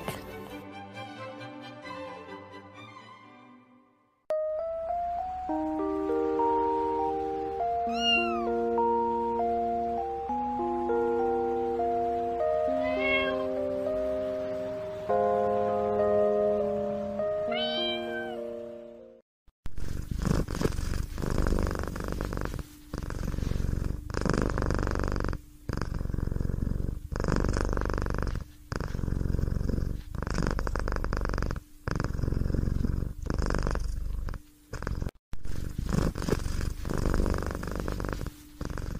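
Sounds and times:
cat purring: 19.8 - 38.9.

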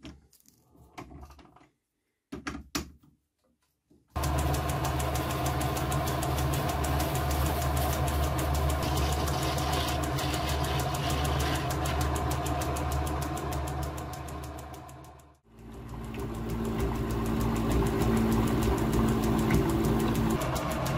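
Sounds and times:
metal lathe motor hum: 4.2 - 20.9
fast even ticking: 10.0 - 20.9.

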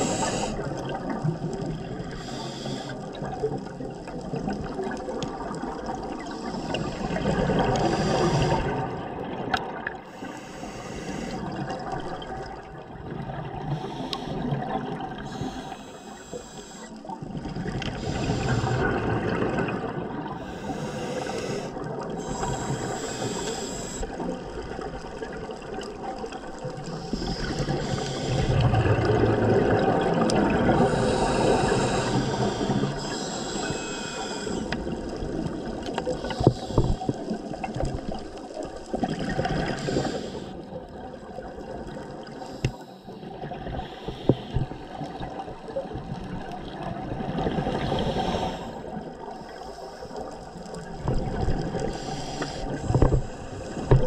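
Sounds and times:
diver breathing through regulator: 0.0 - 0.8, 2.0 - 3.2, 6.4 - 8.9, 10.0 - 12.2, 13.6 - 17.2, 17.9 - 19.5, 20.4 - 24.3, 26.8 - 28.9, 30.6 - 35.2, 36.0 - 37.4, 39.4 - 40.8, 42.3 - 45.1, 47.4 - 50.4, 51.3 - 54.0.

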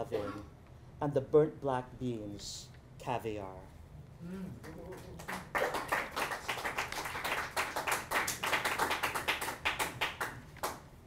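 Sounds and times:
small audience clapping: 4.6 - 11.0.

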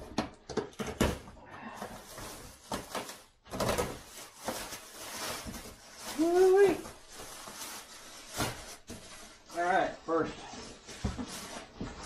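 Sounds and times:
cardboard boxes knocking and thumping: 0.0 - 5.8
cardboard rustling and scraping: 1.0 - 12.0.

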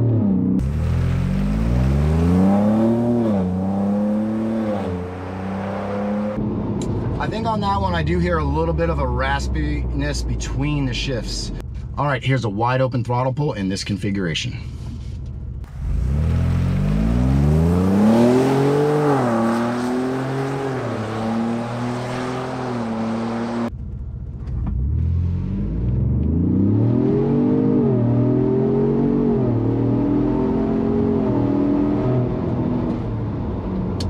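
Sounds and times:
engine at full throttle with upshifts: 0.0 - 7.1, 15.6 - 23.7, 24.4 - 34.0.

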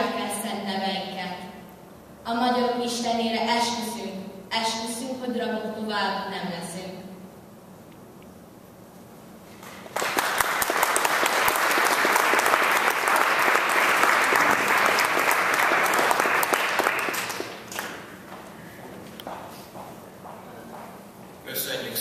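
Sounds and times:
audience applauding: 9.6 - 18.3.

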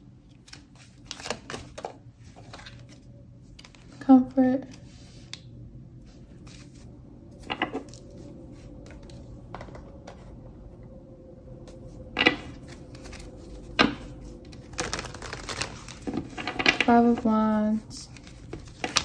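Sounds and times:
faint steady hum: 0.0 - 19.0
cards clicking and tapping: 18.1 - 19.0.

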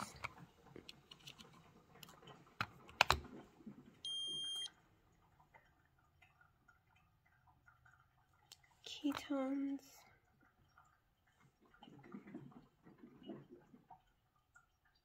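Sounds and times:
electronic beep: 4.1 - 4.7.

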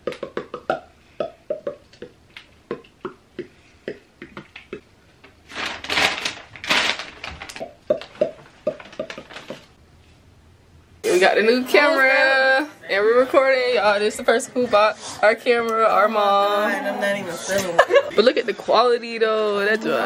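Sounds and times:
paper sheet rustling: 5.4 - 7.6.

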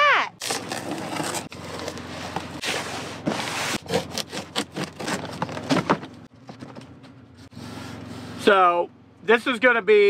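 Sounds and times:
tape tearing off cardboard: 0.4 - 6.0
tape and cardboard crackling: 0.4 - 7.1.

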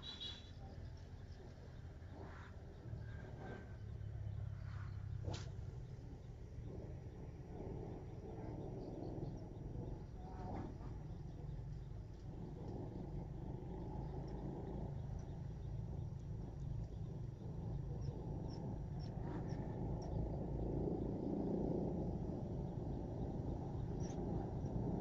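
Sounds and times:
faint high chirps: 0.0 - 1.1
low steady rumble: 0.0 - 25.0.

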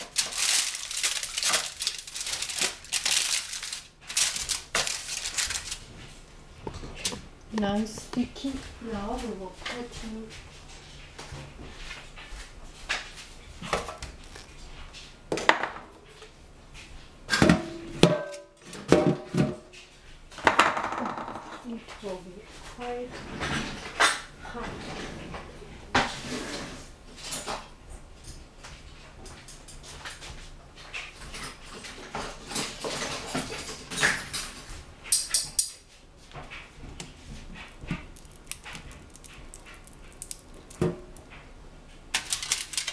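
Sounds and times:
kitchen utensils and dishes clinking: 29.3 - 35.9.

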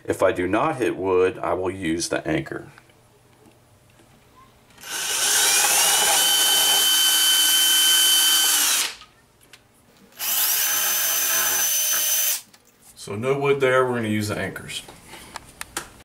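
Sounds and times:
cordless drill drilling into plaster: 4.8 - 9.0, 10.2 - 12.4.

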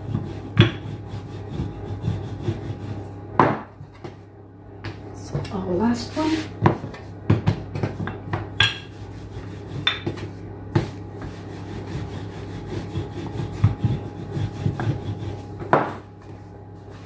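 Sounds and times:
rolling pin rolling over dough: 0.0 - 4.2, 4.8 - 17.0
knocks on worktop: 3.4 - 3.7, 15.6 - 16.0.

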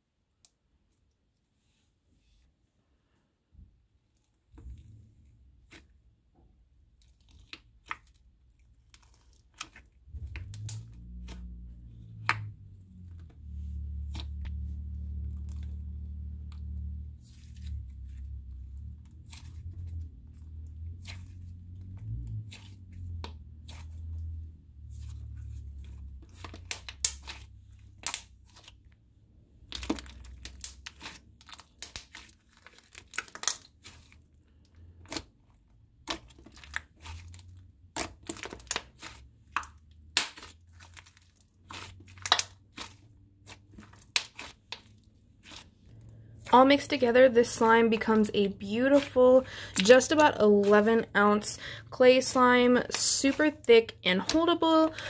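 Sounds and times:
low rumble: 10.0 - 28.1
slime tearing: 29.6 - 46.5.

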